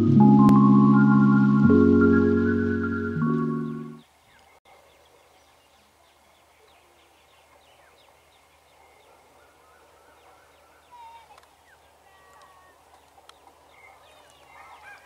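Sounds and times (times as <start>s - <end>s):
electronic chord: 0.0s - 4.0s
birds chirping: 0.0s - 15.0s.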